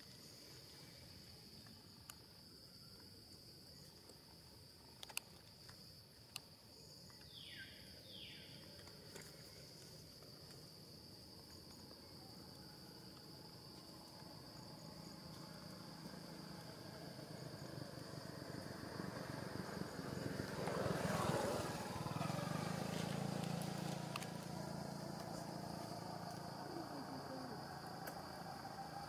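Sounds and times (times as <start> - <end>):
insects chirping: 0.0 - 29.0
vehicle engine approaching: 14.4 - 29.0.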